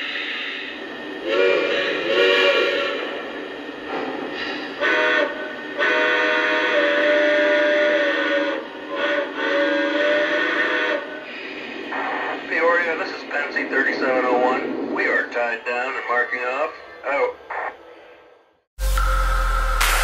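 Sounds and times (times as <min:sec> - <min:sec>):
chime steam whistle blasts: 0:04.6 - 0:11.2, 0:18.8 - 0:20.0.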